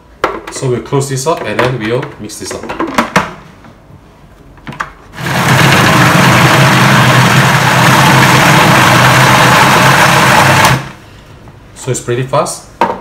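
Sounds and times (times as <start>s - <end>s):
food processor motor running: 5.2s - 11.0s.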